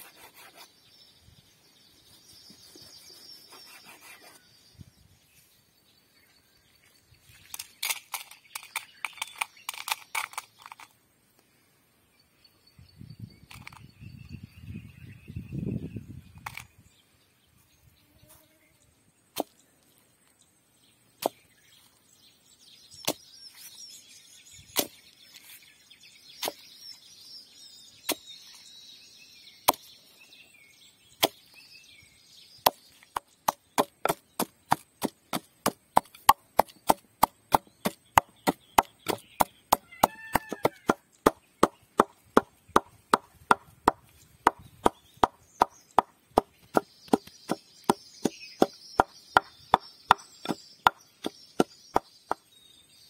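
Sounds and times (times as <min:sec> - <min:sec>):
wooden pestle pounding in mortar: 0:32.7 - 0:52.4.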